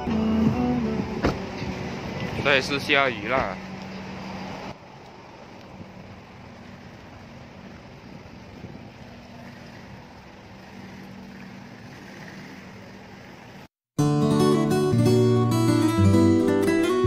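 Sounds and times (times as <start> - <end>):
acoustic guitar music: 0.0 - 2.9, 14.0 - 17.0.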